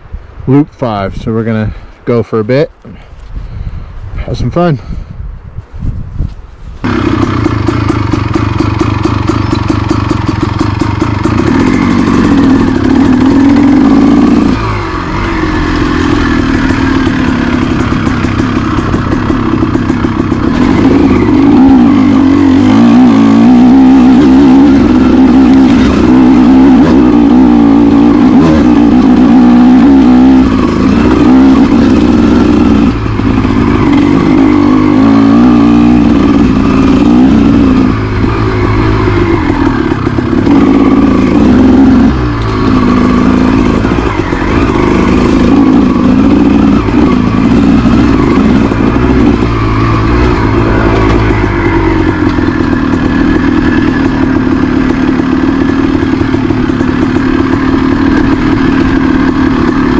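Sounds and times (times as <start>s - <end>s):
dirt bike engine revving: 6.8s - 59.9s.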